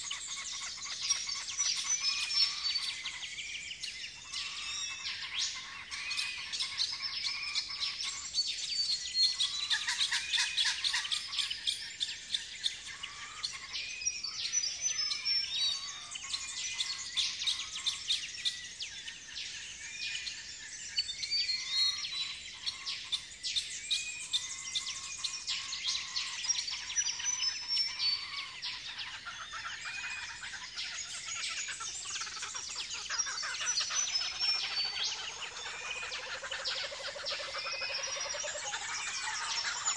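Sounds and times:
birds chirping and trilling: 0.0s - 39.9s.

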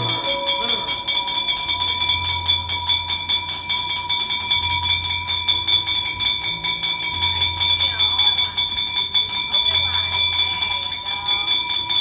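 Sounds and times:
bell-like ringing: 0.0s - 12.0s.

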